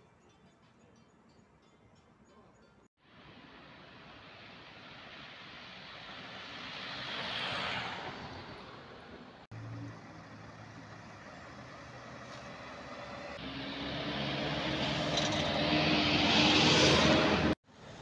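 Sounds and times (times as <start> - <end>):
minibus engine approaching: 3.0 - 18.0
steady traffic hum: 3.0 - 18.0
van driving past: 5.3 - 17.6.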